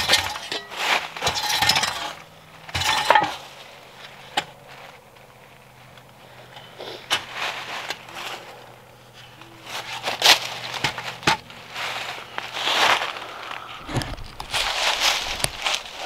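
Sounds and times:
footsteps crunching dry leaves: 0.6s - 1.2s, 3.4s - 8.9s, 9.6s - 16.0s.

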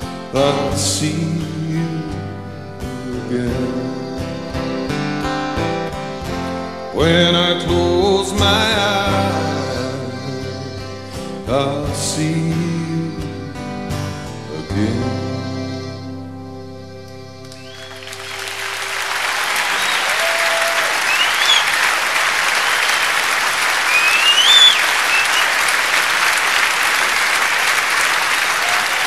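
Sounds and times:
accordion and guitar chord: 0.0s - 20.1s
audience applause: 17.5s - 29.0s
audience cheering: 17.5s - 29.0s
rising whistles: 17.5s - 29.0s.

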